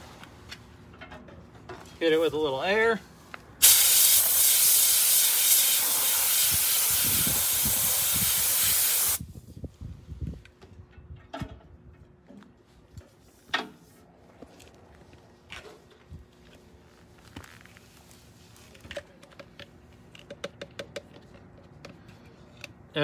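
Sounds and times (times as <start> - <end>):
compressed air gun hissing: 3.6 - 9.2.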